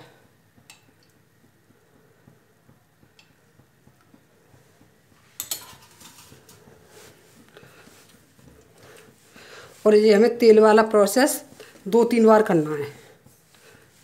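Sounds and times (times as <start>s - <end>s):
dough kneaded on stone counter: 0.0s - 14.0s
faint taps: 0.6s - 4.9s
metal spoon clink: 5.4s - 6.2s.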